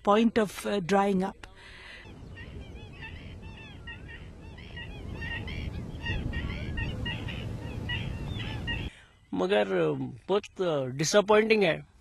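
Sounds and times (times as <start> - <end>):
flamingos honking: 2.3 - 8.9.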